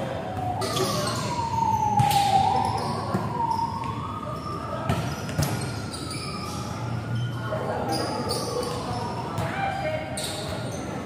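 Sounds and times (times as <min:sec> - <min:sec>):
siren wailing: 0:00.0 - 0:04.9.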